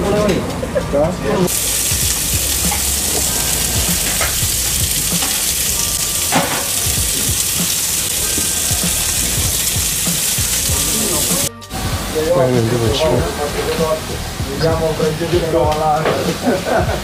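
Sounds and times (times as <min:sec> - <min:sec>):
meat patties sizzling on griddle: 0:01.5 - 0:11.5
spatula working on griddle: 0:01.5 - 0:11.5.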